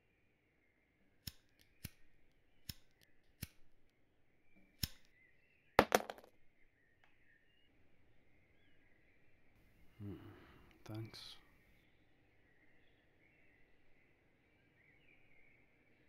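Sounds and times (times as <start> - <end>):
lighter clicking: 4.8 - 5.1.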